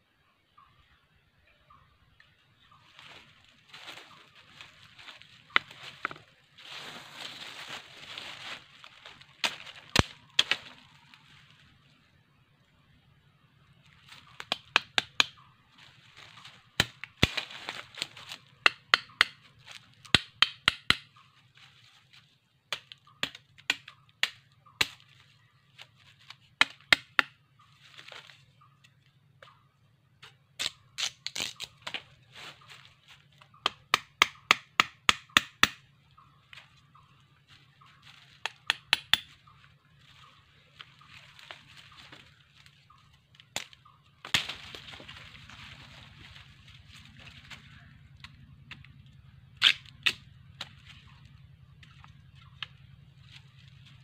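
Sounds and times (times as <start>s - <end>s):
knife cracking wooden stick: 49.6s - 50.7s.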